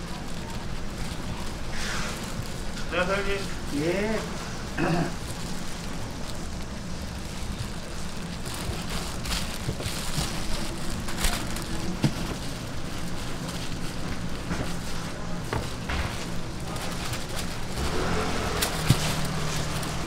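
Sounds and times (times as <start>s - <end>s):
crackling hiss: 0.0s - 11.9s.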